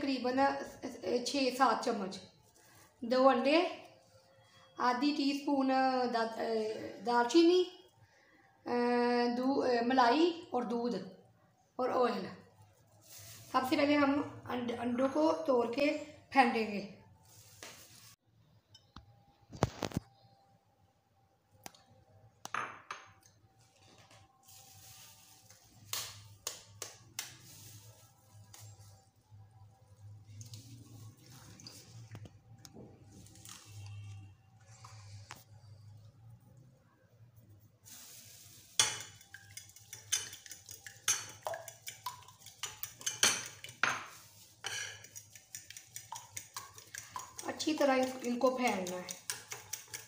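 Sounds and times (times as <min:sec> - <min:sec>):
egg tapping against bowl rim: 0:38.8 - 0:44.1, 0:44.7 - 0:50.0.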